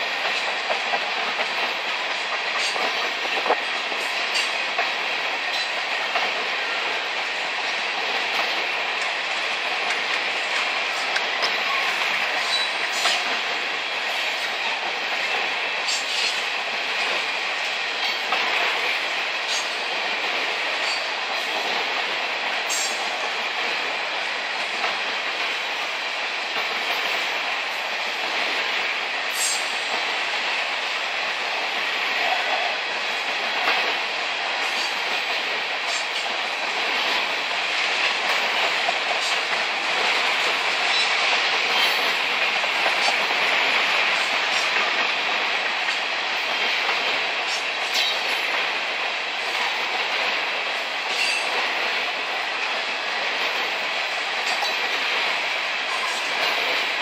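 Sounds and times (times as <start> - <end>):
wheels clacking over rail joints: 0.0 - 7.0, 51.0 - 57.0
steel wheels on rail: 0.0 - 57.0.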